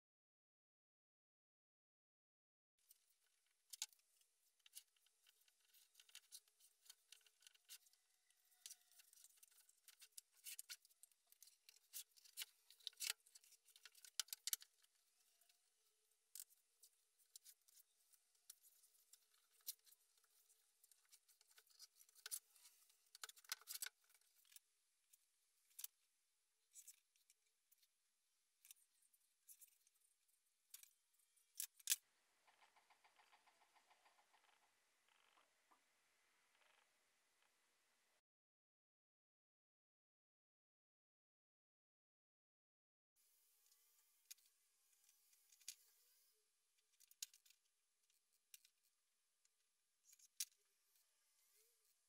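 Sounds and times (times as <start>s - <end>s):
tape crackling and ticking: 2.9s - 26.0s, 30.7s - 37.5s.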